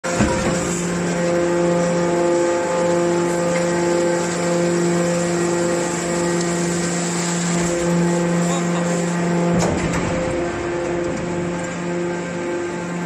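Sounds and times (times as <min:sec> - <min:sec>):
hydraulic pump humming: 0:00.0 - 0:13.0.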